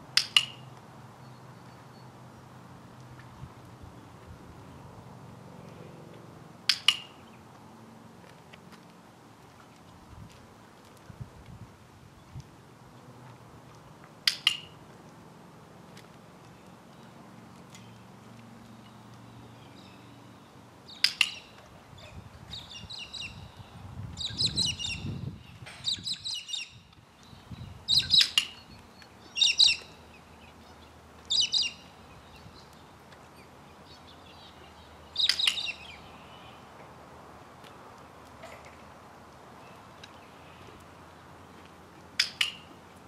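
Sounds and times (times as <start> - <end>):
bird chirping: 18.8 - 36.7.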